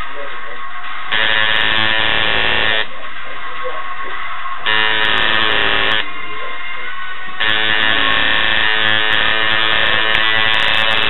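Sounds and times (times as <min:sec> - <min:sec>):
background music: 0:00.0 - 0:11.0
tattoo machine buzzing: 0:01.1 - 0:02.9, 0:04.6 - 0:06.1, 0:07.4 - 0:11.0.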